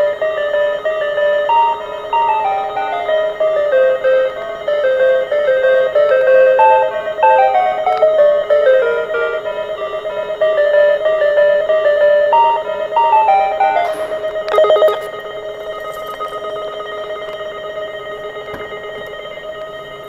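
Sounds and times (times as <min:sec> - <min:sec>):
electronic warning melody: 0:13.1 - 0:16.6.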